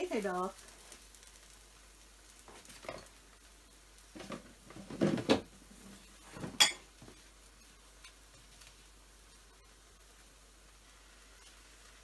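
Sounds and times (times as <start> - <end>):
kitchen items knocking and rattling: 4.1 - 6.9.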